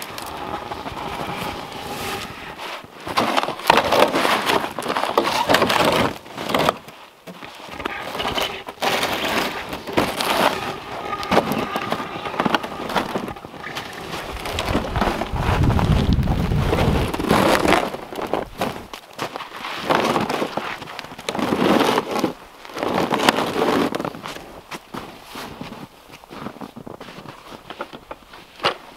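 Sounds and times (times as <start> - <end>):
deep rumble: 0.0 - 2.7, 10.3 - 17.6
plastic sled dragged on snow: 0.0 - 28.9.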